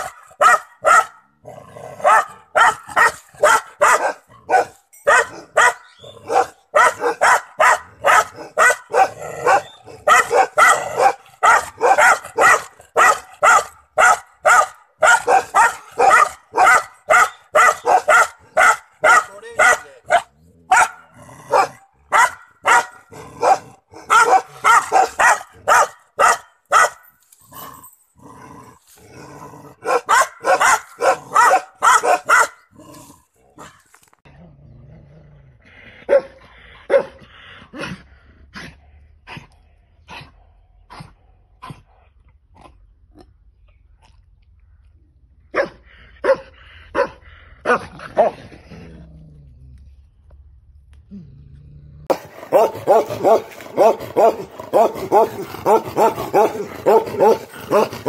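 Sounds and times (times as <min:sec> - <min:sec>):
puppy barking: 0:00.0 - 0:01.2, 0:02.0 - 0:27.0, 0:29.8 - 0:32.6, 0:36.1 - 0:37.2, 0:45.5 - 0:48.4, 0:52.1 - 0:58.0
larger dog barking: 0:00.0 - 0:01.3, 0:02.0 - 0:27.0, 0:29.7 - 0:32.7, 0:36.1 - 0:37.2, 0:45.5 - 0:48.4, 0:52.1 - 0:58.0.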